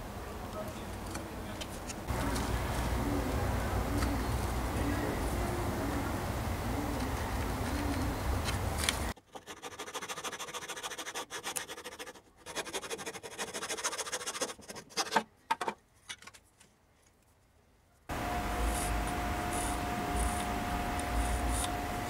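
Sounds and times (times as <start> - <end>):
hand saw cutting wood: 9.2 - 15.2.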